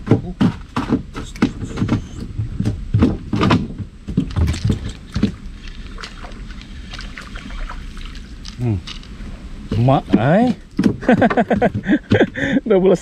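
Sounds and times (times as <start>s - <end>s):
knocks: 0.0s - 5.4s, 9.7s - 12.4s
water splashing: 3.5s - 12.5s.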